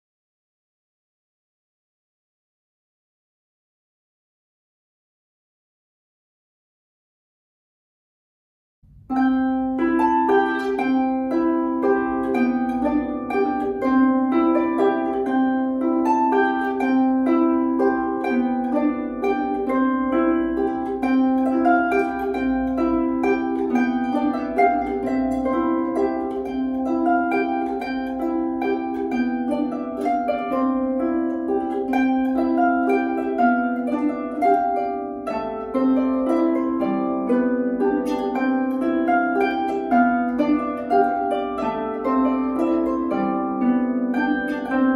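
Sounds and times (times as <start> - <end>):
harp strings plucked: 8.8 - 44.9.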